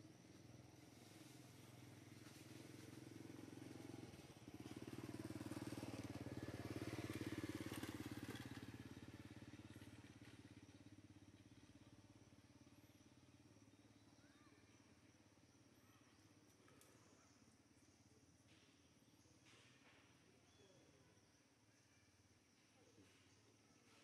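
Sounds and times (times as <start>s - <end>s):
motor vehicle passing: 0.8s - 10.6s.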